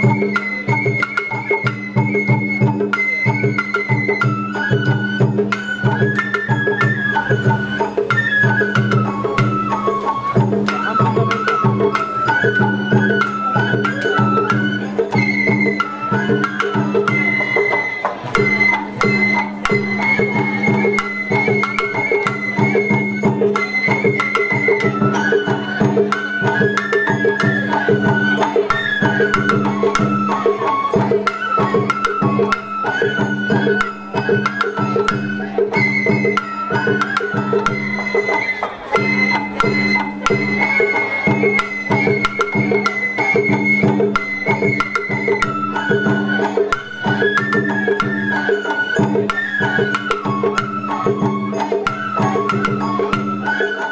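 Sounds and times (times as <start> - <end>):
bamboo flute melody: 0.0 - 53.9
taiko drumming: 0.0 - 53.9.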